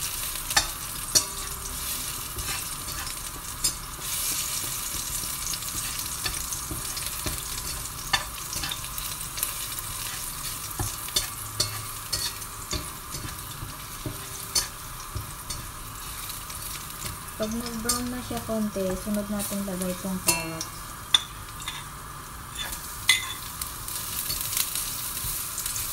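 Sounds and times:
garlic sizzling in oil: 0:00.0 - 0:25.9
metal spatula scraping pan: 0:00.5 - 0:16.2, 0:20.3 - 0:21.9, 0:22.5 - 0:23.4.

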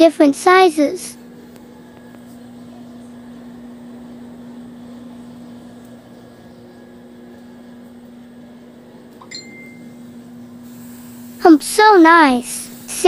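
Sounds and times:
low electrical hum: 0:00.0 - 0:13.0
faint hiss: 0:10.6 - 0:13.0.

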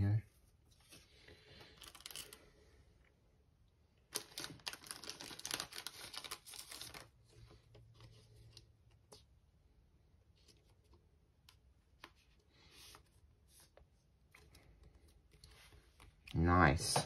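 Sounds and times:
plastic card sleeve crinkling: 0:00.7 - 0:02.5, 0:04.0 - 0:09.2.

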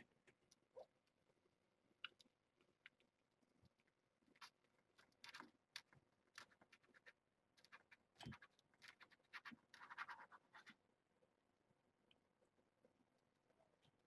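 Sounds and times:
kittens scratching and scrabbling: 0:03.4 - 0:10.8
scratchy rustle: 0:06.3 - 0:10.8.

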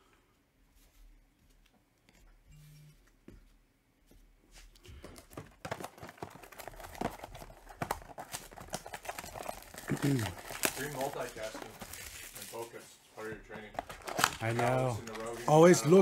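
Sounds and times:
crinkling plastic wrappers: 0:05.0 - 0:12.9, 0:13.6 - 0:16.0.

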